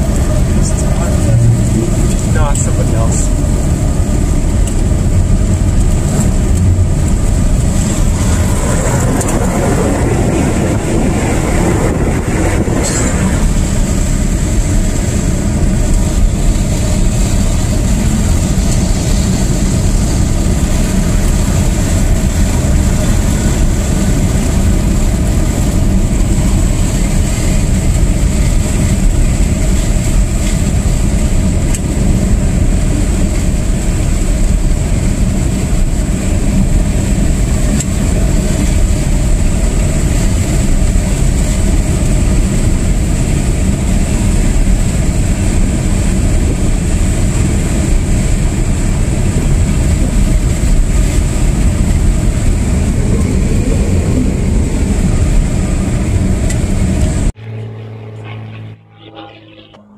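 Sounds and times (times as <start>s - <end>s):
passing vehicle rushing: 0.0s - 30.1s, 51.2s - 59.7s
tyres rumbling on gravel: 0.0s - 57.3s.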